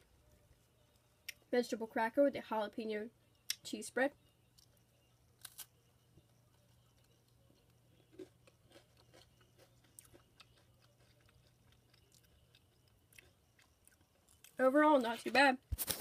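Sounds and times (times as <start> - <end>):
person chewing crunchy cracker: 5.4 - 5.7, 6.5 - 14.6.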